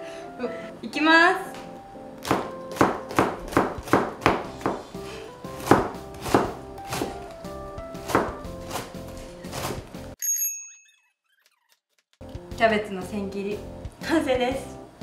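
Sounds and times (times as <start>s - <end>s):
knife chopping on plastic board: 2.2s - 4.9s, 5.6s - 7.3s, 7.9s - 9.9s.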